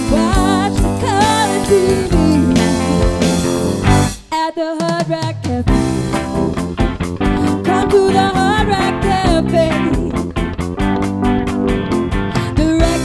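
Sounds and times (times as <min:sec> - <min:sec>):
woman singing: 0:00.0 - 0:03.4, 0:04.3 - 0:06.0, 0:07.4 - 0:10.3, 0:12.4 - 0:13.0
live band playing: 0:00.0 - 0:04.3, 0:04.9 - 0:13.0
drum hit: 0:02.1 - 0:04.2.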